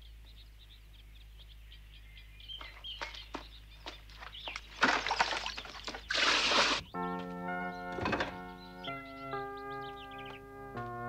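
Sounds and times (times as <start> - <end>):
birds chirping faintly: 0.0 - 11.0
water splashing from a bucket: 4.5 - 6.8
sharp knocks: 7.8 - 8.9.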